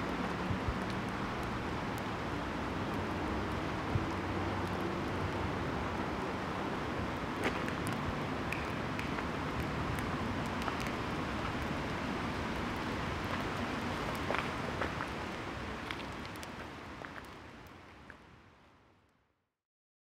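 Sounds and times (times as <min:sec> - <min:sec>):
distant traffic hum: 0:00.0 - 0:17.8
faint light ticks: 0:15.8 - 0:18.3.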